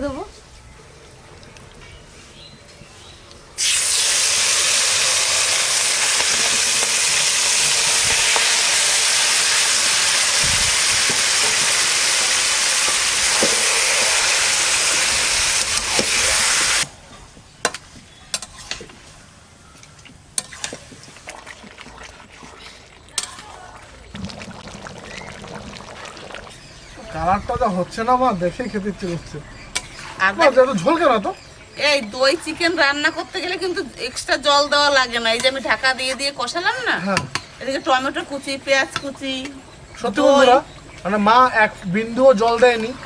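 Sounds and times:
chicken sizzling in hot oil: 3.6 - 16.9, 24.0 - 26.7.

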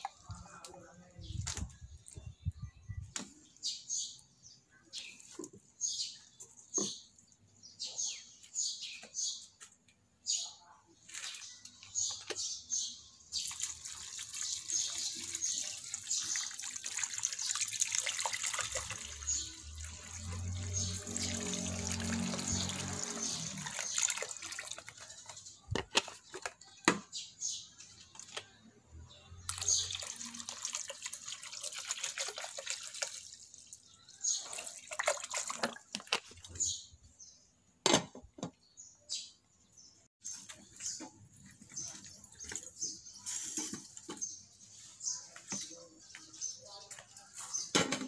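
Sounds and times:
water pouring into pot: 13.4 - 25.3, 29.5 - 36.2.

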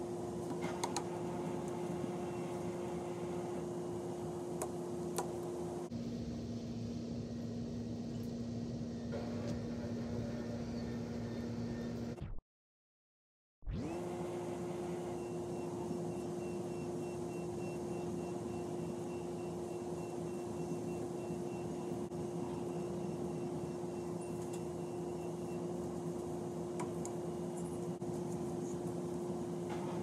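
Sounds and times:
steady hum: 0.0 - 12.3, 13.7 - 30.0.

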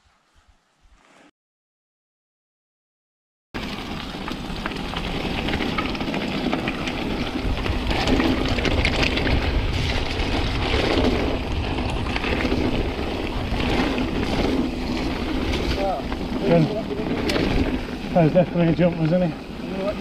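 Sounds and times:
bike clicks and rattles: 3.6 - 20.0
tyres rolling over dirt: 3.6 - 20.0
wind buffeting microphone: 4.8 - 18.9.

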